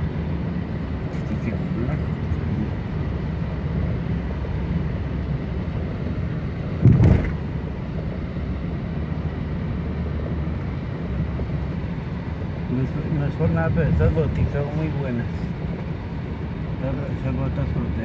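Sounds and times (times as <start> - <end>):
car engine and tyres rumbling: 0.0 - 18.0
thump: 6.8 - 7.4.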